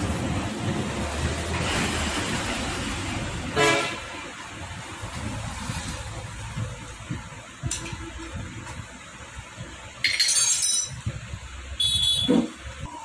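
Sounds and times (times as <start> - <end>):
metal tools clinking: 10.0 - 11.0.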